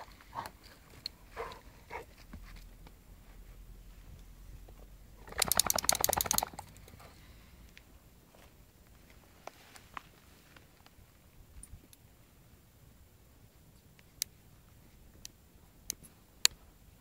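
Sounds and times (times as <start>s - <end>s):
dog shaking ears and harness: 5.2s - 6.8s.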